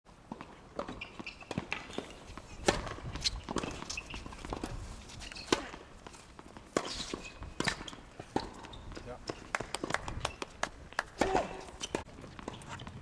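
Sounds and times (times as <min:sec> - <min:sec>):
racket hitting tennis ball: 0:00.3 - 0:12.8
footsteps and shoe scuffs on court: 0:00.4 - 0:09.4.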